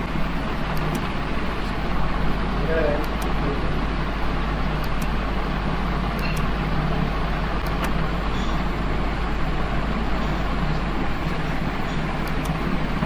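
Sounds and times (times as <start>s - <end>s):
low room hum: 0.0s - 13.0s
computer mouse clicks: 0.8s - 1.1s, 4.8s - 5.2s, 6.2s - 6.5s, 7.6s - 8.0s, 12.2s - 12.6s.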